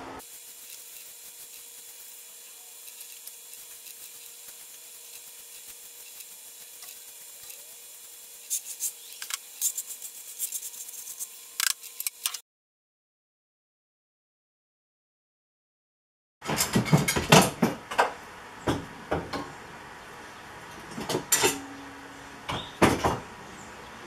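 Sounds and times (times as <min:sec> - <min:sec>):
broom sweeping concrete floor: 0:00.0 - 0:12.4.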